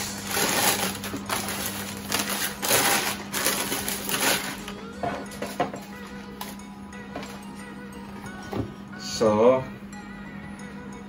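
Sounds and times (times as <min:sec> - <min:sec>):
tissue paper rustling: 0:00.0 - 0:04.6.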